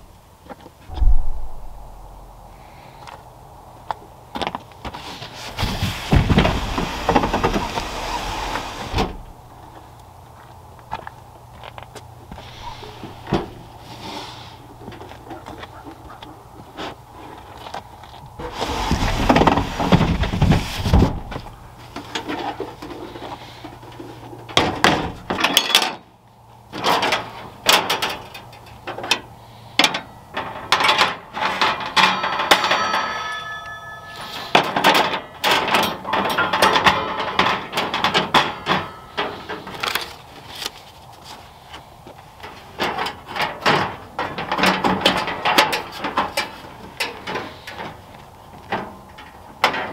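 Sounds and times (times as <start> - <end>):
drawer rolling rumble: 5.6 - 9.4, 18.4 - 21.4
metal clanks and knocks: 29.8 - 39.7.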